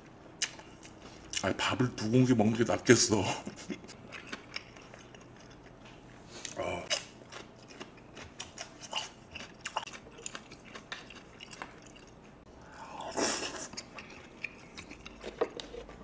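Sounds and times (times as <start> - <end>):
wet chewing: 3.6 - 5.8, 6.4 - 12.4, 13.4 - 16.0.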